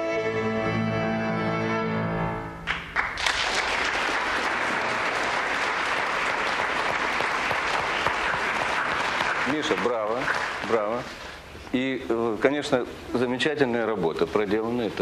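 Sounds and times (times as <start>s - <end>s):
audience applause: 2.7s - 11.1s.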